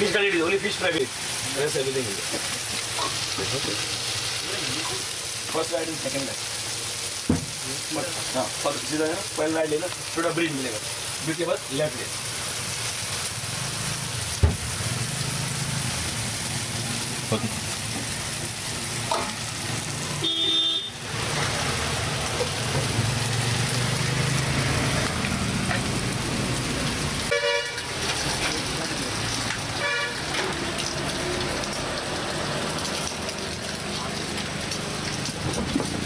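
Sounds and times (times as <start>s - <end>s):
street traffic: 0.0s - 36.0s
vehicle horns honking: 20.2s - 21.0s, 27.3s - 27.9s, 29.8s - 30.3s.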